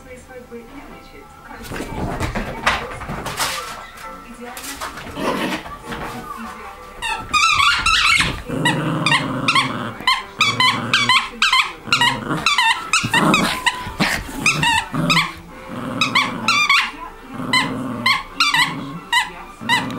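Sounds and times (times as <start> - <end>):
dog growling: 1.6 - 19.9
squeaky toy squeaking: 7.0 - 15.4, 16.0 - 19.9.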